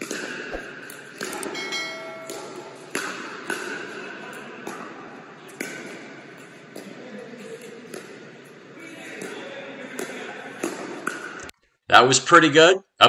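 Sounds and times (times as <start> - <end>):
short bell-like ding: 1.4 - 2.7.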